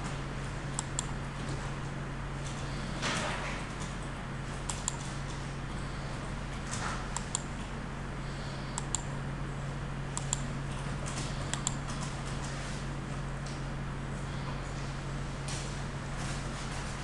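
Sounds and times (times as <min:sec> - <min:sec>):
low hum and hiss: 0:00.0 - 0:17.0
computer mouse clicking: 0:07.2 - 0:07.5, 0:08.8 - 0:09.1, 0:10.2 - 0:10.5, 0:11.5 - 0:11.8.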